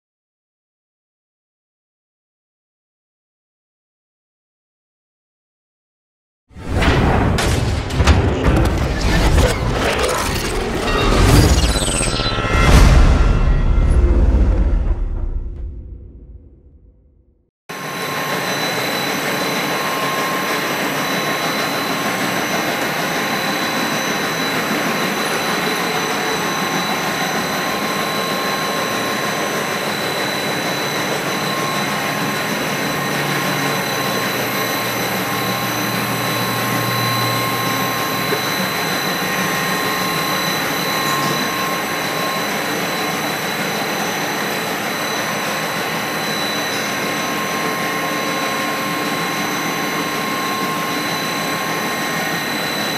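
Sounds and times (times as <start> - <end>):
high-pitched machine whines: 6.7 - 16.0, 17.7 - 52.9
low hum: 6.7 - 17.3
machine hiss and hum: 17.8 - 52.9.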